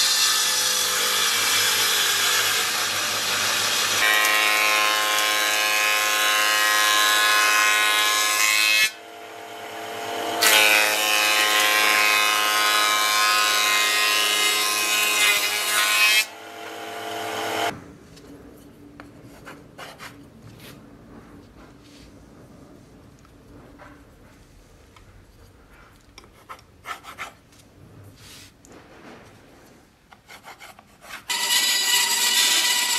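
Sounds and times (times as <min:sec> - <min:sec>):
circular saw ripping wood: 0:31.3 - 0:32.9.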